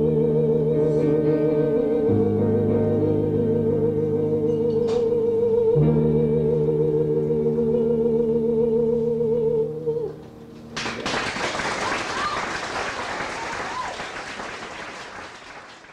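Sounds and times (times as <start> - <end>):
sustained accompaniment chord: 0.0 - 10.8
audience applause: 10.8 - 15.9.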